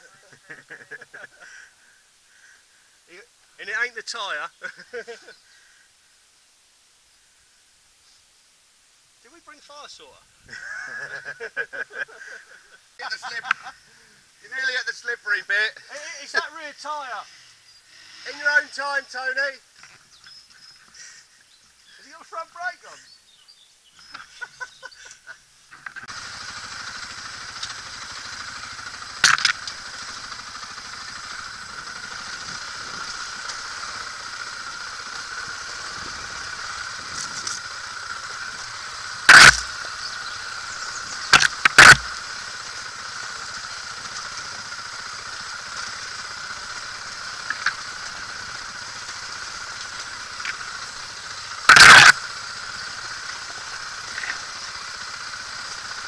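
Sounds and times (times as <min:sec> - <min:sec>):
dirt bike and wind rushing: 0:35.4 - 0:37.5.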